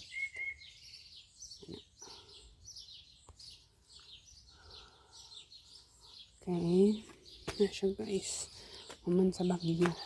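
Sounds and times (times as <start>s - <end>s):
small songbirds chirping: 0.0s - 10.0s.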